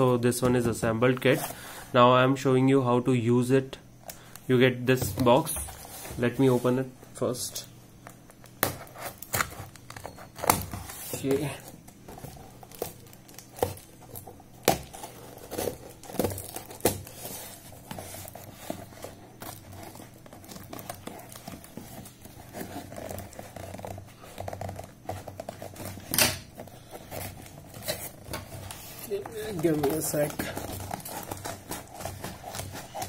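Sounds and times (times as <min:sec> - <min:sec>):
packing tape crinkling and tearing: 0:08.0 - 0:33.0.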